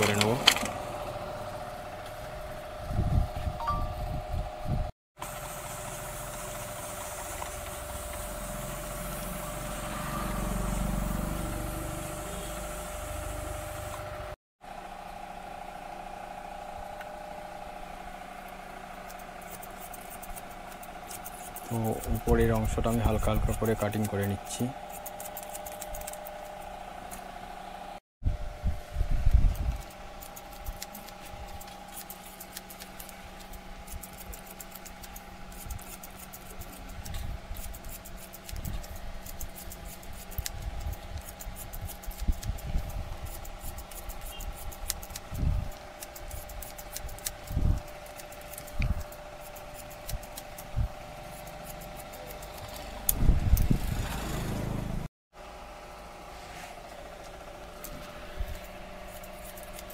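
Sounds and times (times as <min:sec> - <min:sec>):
scissors snipping hair: 0:19.0 - 0:27.2, 0:29.5 - 0:53.7, 0:57.8 - 0:59.9.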